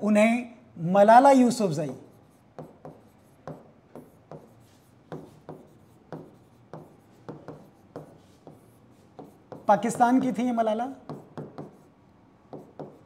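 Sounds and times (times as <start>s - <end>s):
taps and scrapes on touchscreen: 1.9s - 10.4s, 12.5s - 13.0s.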